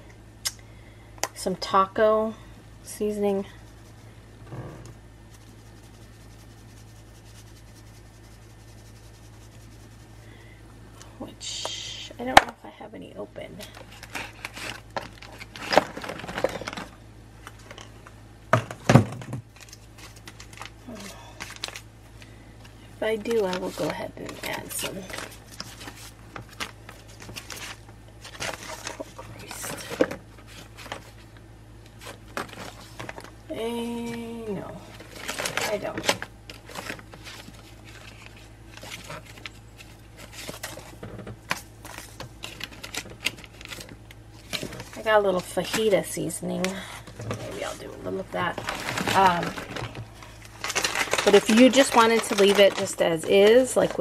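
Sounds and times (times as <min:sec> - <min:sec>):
packets rustling: 0:13.7 - 0:17.9, 0:19.5 - 0:31.3, 0:34.8 - 0:54.0
kitchen items clicking and clattering: 0:50.6 - 0:54.0.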